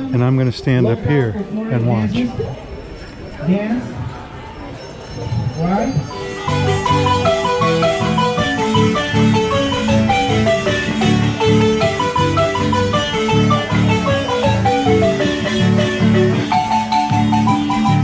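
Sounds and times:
marimba ensemble playing: 5.9s - 18.0s.

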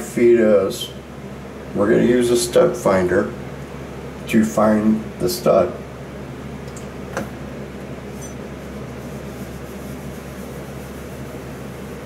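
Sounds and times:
low hum and hiss: 0.0s - 12.0s.

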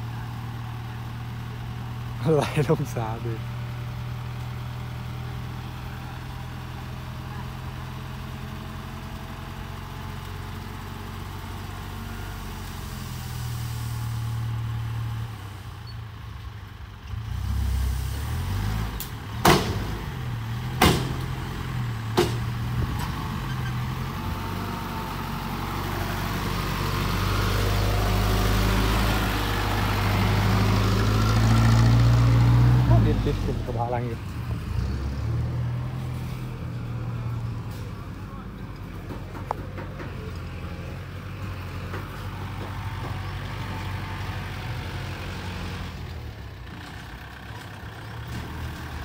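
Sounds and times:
truck diesel engine under load: 0.0s - 49.0s
sharp bangs: 20.8s - 21.3s.

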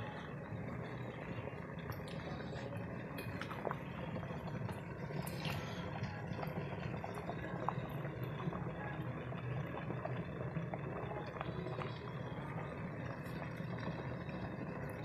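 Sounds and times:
water boiling hard in pots: 0.0s - 15.0s.

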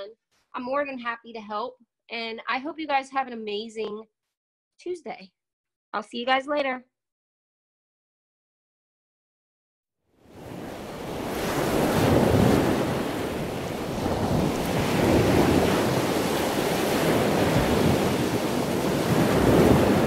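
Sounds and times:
waves washing in: 10.2s - 20.0s.

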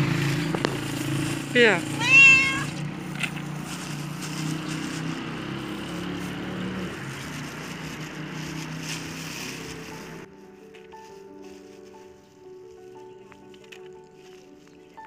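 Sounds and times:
vehicle engine idling: 0.0s - 10.3s.

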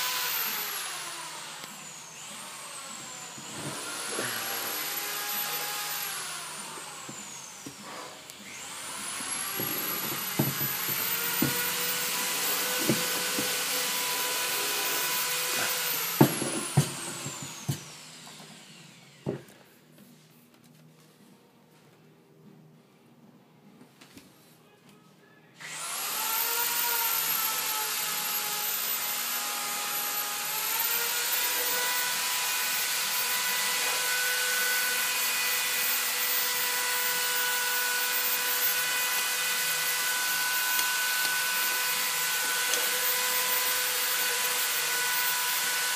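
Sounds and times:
electric blower whining hiss: 0.0s - 19.4s.

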